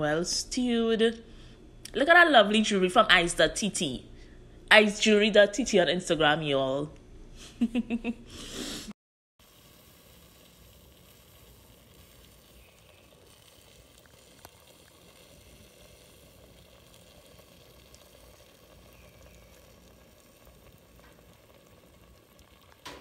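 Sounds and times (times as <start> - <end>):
chicken sizzling in a pot: 9.4 - 23.0.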